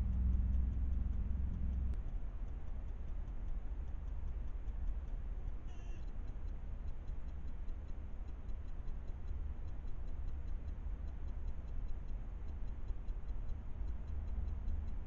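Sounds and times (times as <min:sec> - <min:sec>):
low rumble: 0:00.0 - 0:02.3
faint ticking: 0:00.0 - 0:15.0.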